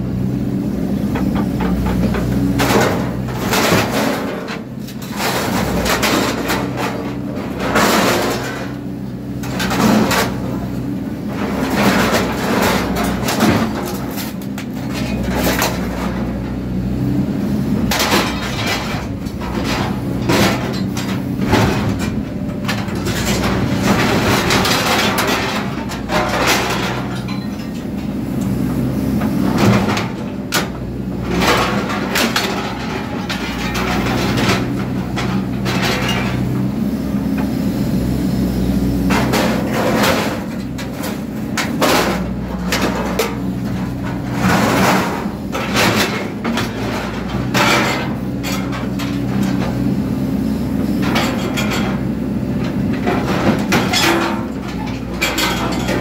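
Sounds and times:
excavator diesel engine running: 0.0 - 56.0
hydraulic shear chopping metal: 17.8 - 36.7, 39.1 - 49.8, 51.0 - 56.0
metal pieces clanking and clattering: 18.0 - 27.9, 53.6 - 56.0.

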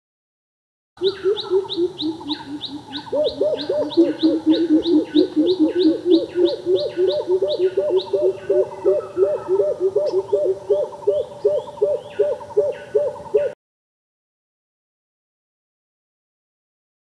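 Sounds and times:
bird deep rapid coop call: 1.0 - 13.6.

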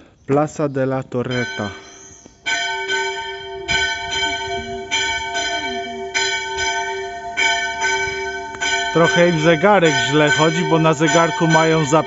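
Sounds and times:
church bell ringing: 1.3 - 12.0.

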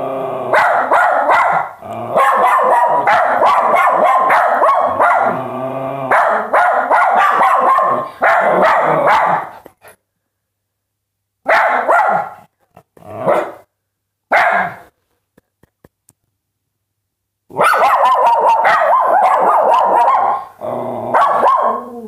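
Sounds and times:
small dogs barking: 0.5 - 5.4, 6.1 - 9.6, 11.4 - 12.5, 13.2 - 13.6, 14.3 - 14.9, 17.5 - 22.0.

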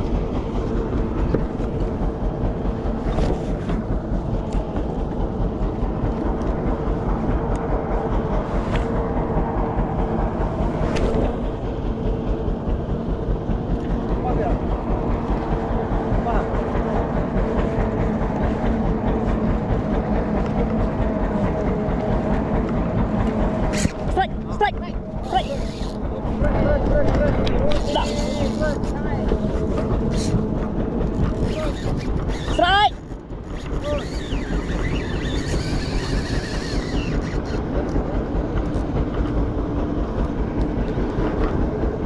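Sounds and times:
boat engine humming: 0.0 - 42.0
wind: 0.0 - 42.0
fishing reel cranking: 25.2 - 26.2, 27.8 - 30.4, 31.0 - 38.0.

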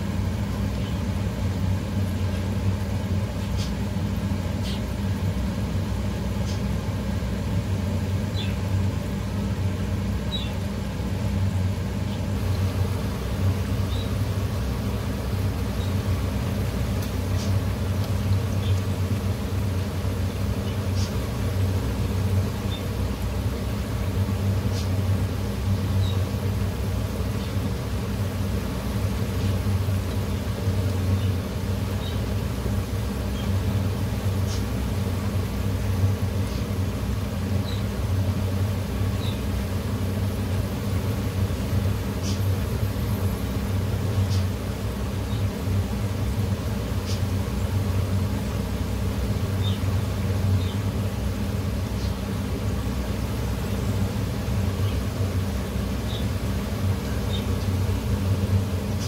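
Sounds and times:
food deep-frying in oil: 0.0 - 59.0
steady low hum: 0.0 - 59.0.

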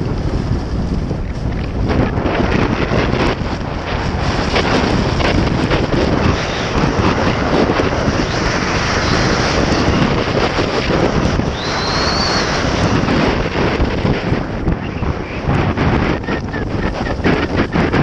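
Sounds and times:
skis scraping over snow: 0.0 - 18.0
wind buffeting microphone: 0.0 - 18.0
thin high whistle: 11.5 - 12.8.

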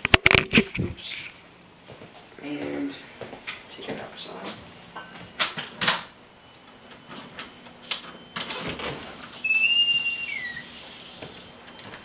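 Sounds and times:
door hinge squeak: 8.5 - 10.8.

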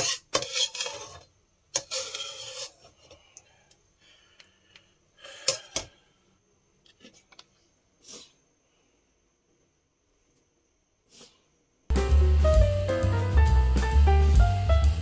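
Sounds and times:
metal spatula scraping a wok: 0.0 - 3.2.

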